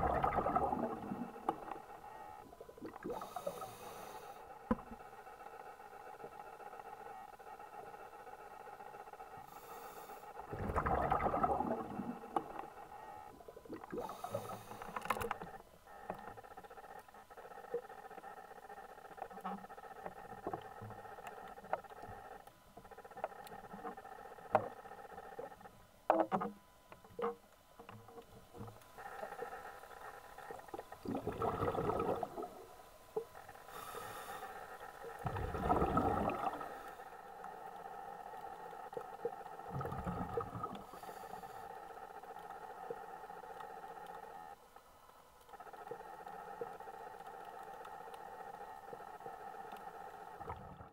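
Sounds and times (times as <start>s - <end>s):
underwater exhaled bubbles rumbling: 0.0s - 1.8s, 10.5s - 12.7s, 30.4s - 32.7s, 35.0s - 36.9s, 39.2s - 40.9s, 50.4s - 50.9s
underwater hum: 0.0s - 50.9s
breath hissing through regulator: 3.0s - 4.4s, 13.9s - 15.0s, 33.7s - 37.1s
sharp clicks and crackles: 13.7s - 31.0s.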